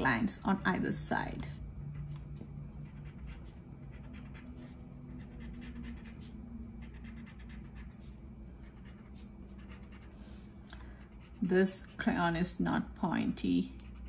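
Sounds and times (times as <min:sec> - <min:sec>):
crayon scratching on paper: 0:02.8 - 0:10.4, 0:11.1 - 0:12.6, 0:13.8 - 0:14.0.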